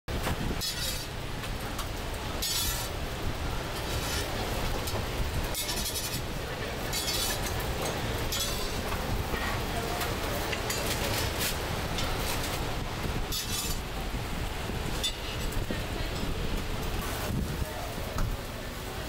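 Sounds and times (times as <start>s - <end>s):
spatula scraping griddle: 0.2s - 1.8s, 2.4s - 3.0s, 3.7s - 9.0s, 10.6s - 12.6s, 13.3s - 13.9s.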